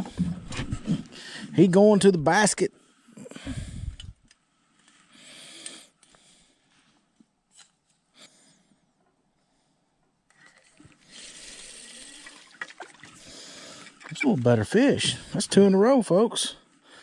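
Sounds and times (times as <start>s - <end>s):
water trickling: 10.4s - 15.7s.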